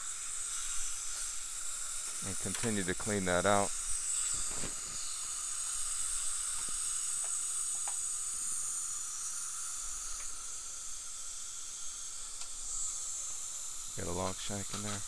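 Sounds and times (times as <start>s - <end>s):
dental equipment hissing: 0.0s - 15.0s.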